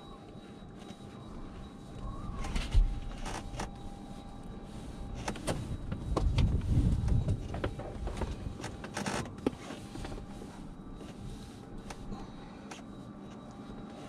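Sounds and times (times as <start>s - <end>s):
faint electrical tone: 0.0s - 9.1s
muffled low rumble of movement: 0.0s - 14.0s.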